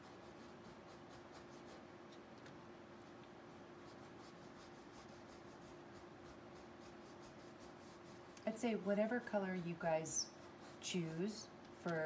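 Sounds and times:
faint steady hum: 0:00.0 - 0:12.0
paintbrush strokes on canvas: 0:03.8 - 0:12.0.

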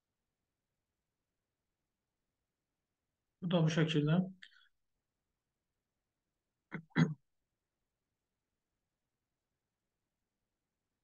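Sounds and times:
man's voice: 0:03.4 - 0:04.3.

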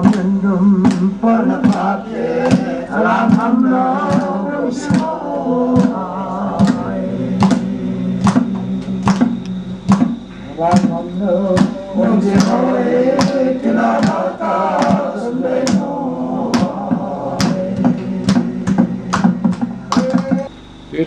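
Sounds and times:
sharp hand clap: 0:00.0 - 0:02.7, 0:04.1 - 0:05.1, 0:07.4 - 0:11.0, 0:12.4 - 0:12.6, 0:13.2 - 0:13.4, 0:14.0 - 0:14.2, 0:14.8 - 0:15.9, 0:17.4 - 0:20.5
group chanting a song: 0:00.0 - 0:20.5.

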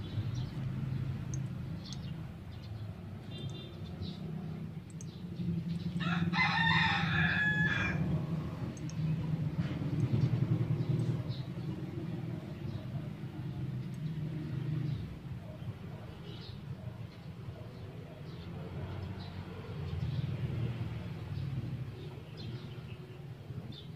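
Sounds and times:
rooster crowing: 0:06.0 - 0:08.2.

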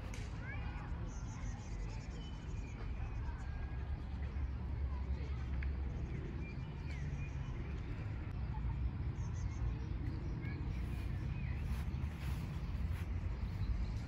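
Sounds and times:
steady low rumble: 0:08.2 - 0:14.0.

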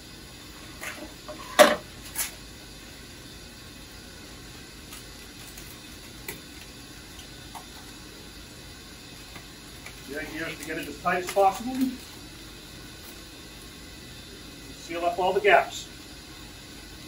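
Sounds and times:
steady background hum: 0:00.0 - 0:17.0
tape rustling on foil: 0:04.9 - 0:06.7, 0:09.8 - 0:12.2.

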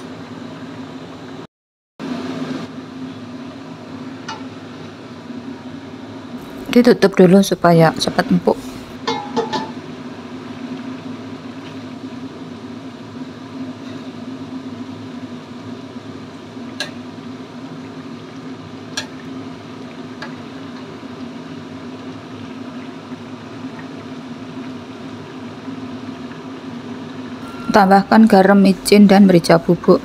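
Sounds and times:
broth boiling in a wok: 0:00.0 - 0:30.0
metal ladle clinking on wok: 0:09.1 - 0:09.7.

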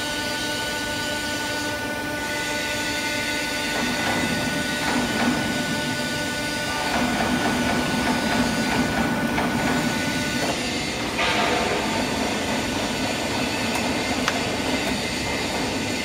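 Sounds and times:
bending machine hum and whine: 0:00.0 - 0:16.0
machine knocks: 0:03.7 - 0:06.0, 0:06.7 - 0:16.0.

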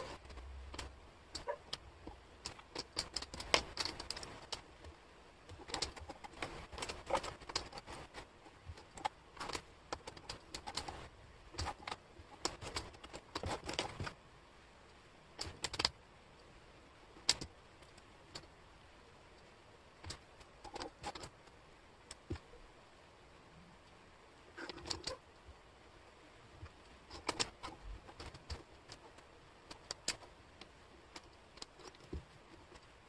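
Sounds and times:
wooden puzzle pieces clattering: 0:00.0 - 0:04.9, 0:05.5 - 0:14.2, 0:20.0 - 0:22.4, 0:26.6 - 0:33.0.

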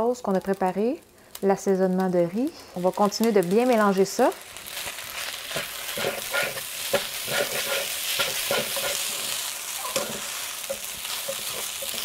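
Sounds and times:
food sizzling: 0:00.0 - 0:12.0
spatulas scraping a wok: 0:04.5 - 0:12.0.

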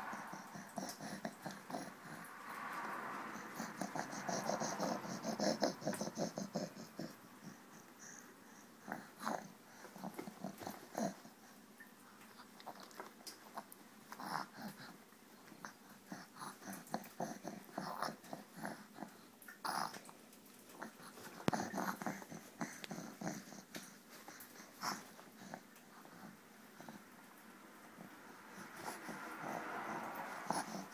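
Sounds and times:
baby grunting and huffing: 0:00.0 - 0:02.4, 0:03.2 - 0:07.6, 0:28.5 - 0:30.9.

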